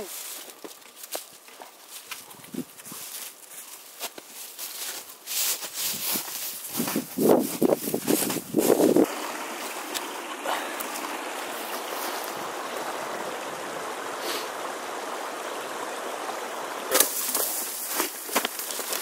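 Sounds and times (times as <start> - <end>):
crunching and rustling through brush: 0.0 - 9.1, 16.9 - 19.0
stream water flowing: 6.7 - 19.0.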